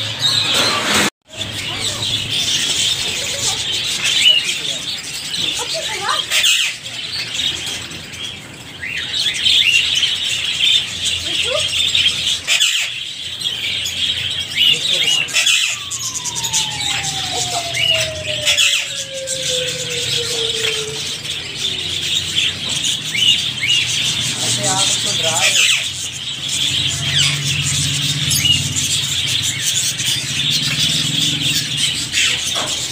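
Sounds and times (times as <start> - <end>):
parakeets chirping and chattering: 0.0 - 32.9
long downward sliding tone: 14.9 - 22.7.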